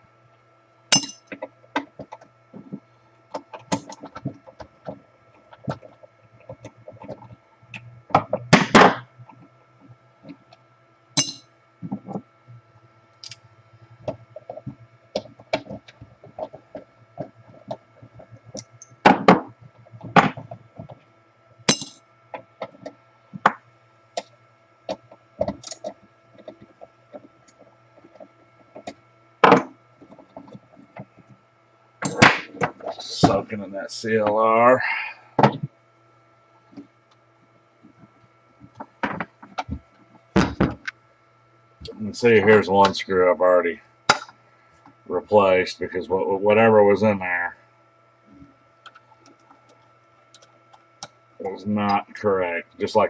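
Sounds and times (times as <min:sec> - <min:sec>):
faint steady hum: 0:00.0 - 0:53.0
metal parts knocking and clinking: 0:01.0 - 0:01.4, 0:11.2 - 0:11.4, 0:21.7 - 0:22.0.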